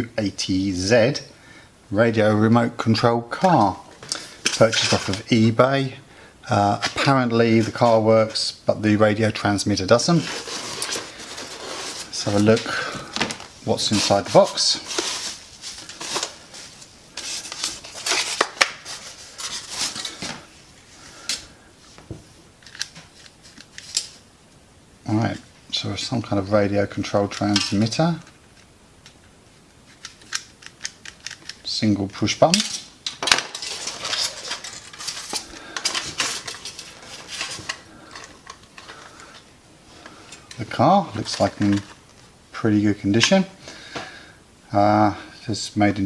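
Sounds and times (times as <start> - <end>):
bubble wrap rustling: 9.8 - 21.0, 32.2 - 42.4
toy handling clicks and scraping: 10.2 - 12.6, 22.6 - 24.2, 29.8 - 31.7, 32.5 - 40.6.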